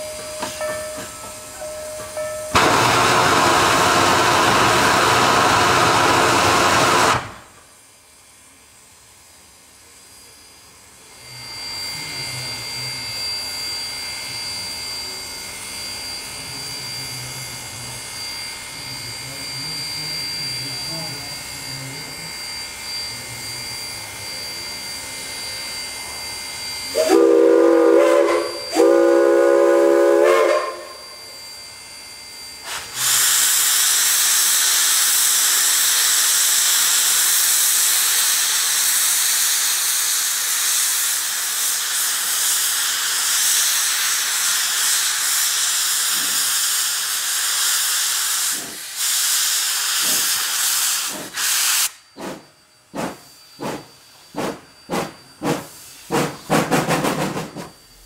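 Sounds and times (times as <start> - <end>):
steam hissing: 0.0 - 7.7, 32.6 - 58.0
steam whistle blast: 1.4 - 7.6, 23.4 - 52.4.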